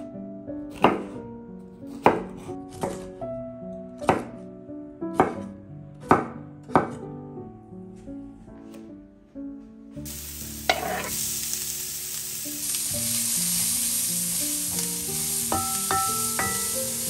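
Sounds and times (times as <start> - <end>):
background music: 0.0 - 17.0
food sizzling in frying pan: 10.0 - 17.0
utensil knocking against pan: 15.5 - 16.8.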